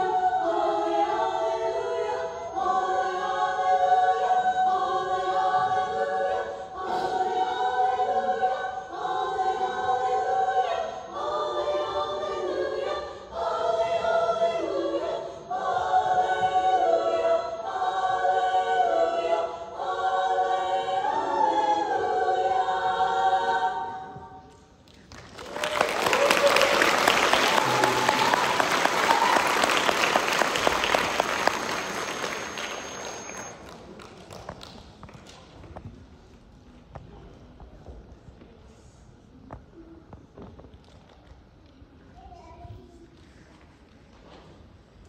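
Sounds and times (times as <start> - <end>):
girls' choir singing in harmony: 0.0 - 24.5, 25.4 - 33.5.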